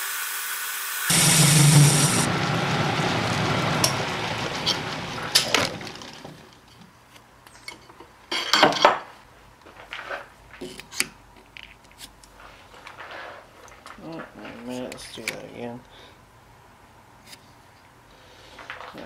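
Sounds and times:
metal lathe spinning down: 1.0 - 6.6.

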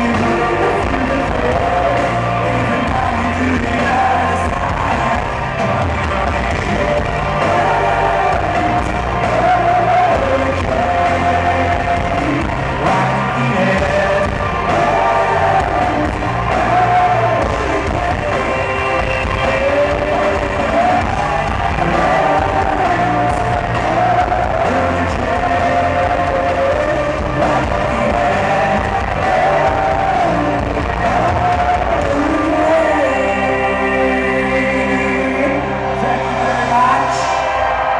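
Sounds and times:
person singing: 0.0 - 37.8
live rock band playing: 0.0 - 37.9.

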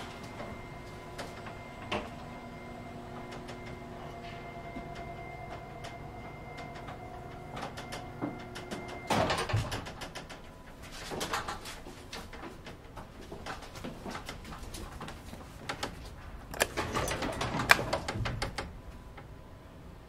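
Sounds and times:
elevator stopping clunk: 0.0 - 10.2
elevator motor hum: 0.0 - 10.8, 14.6 - 20.0
metal rattling and clicks: 8.6 - 18.8.

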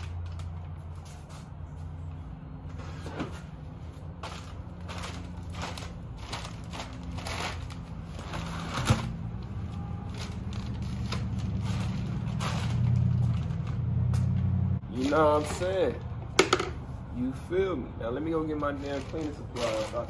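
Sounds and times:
plastic sheeting crinkling: 4.0 - 14.0, 18.3 - 20.0.

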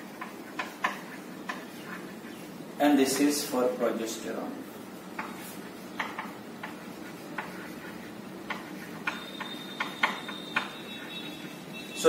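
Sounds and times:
chalk tapping on chalkboard: 0.0 - 2.5, 5.0 - 11.7
faint high whine: 9.1 - 12.0.

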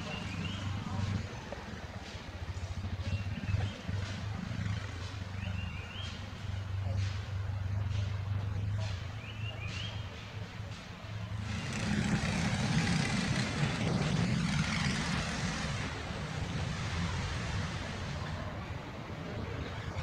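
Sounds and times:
engine humming and rumbling: 0.0 - 20.0.

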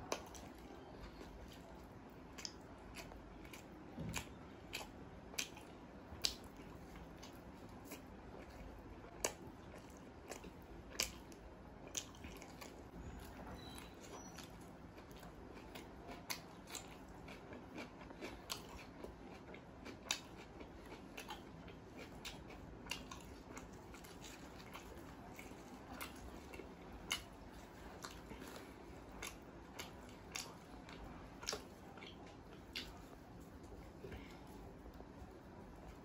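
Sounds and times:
person chewing: 0.0 - 36.0
cucumber crunching: 15.0 - 35.0.

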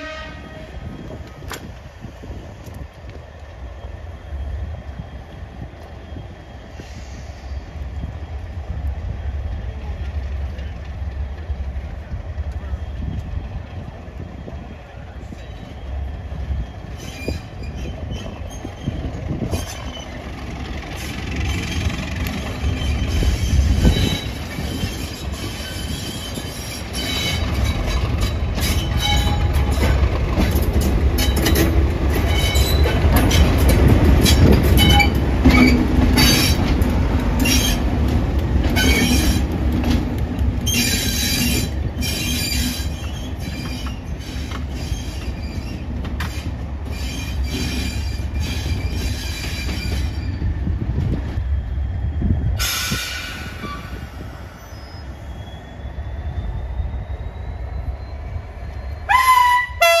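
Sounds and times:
diesel locomotive engine running: 0.0 - 54.6
wheel flanges squealing: 15.2 - 36.8, 38.6 - 39.5, 40.6 - 59.2.

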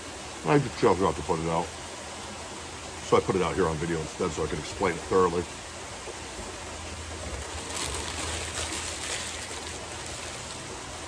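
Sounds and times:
waterfall splashing: 4.7 - 11.0.

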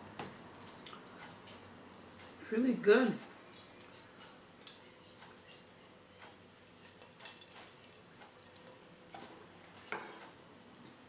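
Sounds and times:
fork and glass clinking: 6.8 - 9.3.

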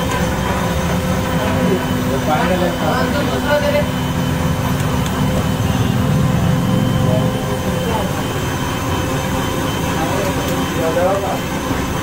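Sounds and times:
low machinery drone: 0.0 - 12.0.

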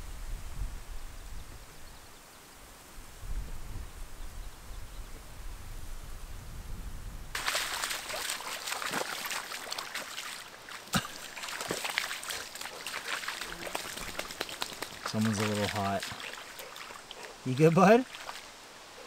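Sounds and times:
dog lapping and splashing: 7.4 - 18.4.

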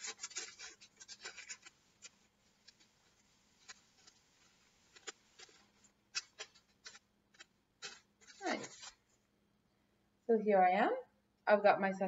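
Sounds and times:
paper crinkling and rustling: 0.0 - 9.2.

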